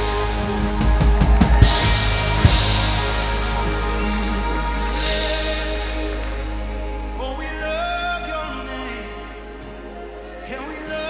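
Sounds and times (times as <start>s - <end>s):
drum hits: 0.0s - 6.4s
held music notes: 0.0s - 11.0s.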